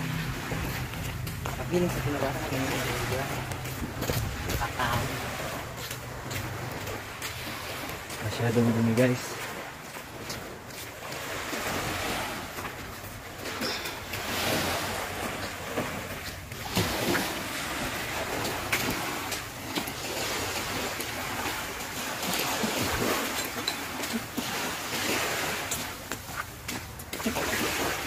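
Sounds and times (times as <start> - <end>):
small waves washing on shore: 0.0 - 28.0
wind on microphone: 2.8 - 7.9.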